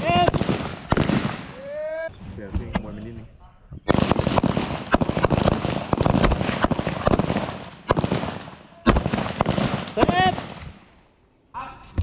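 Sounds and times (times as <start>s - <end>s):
rifle shots: 0.0s - 1.6s, 3.9s - 10.9s.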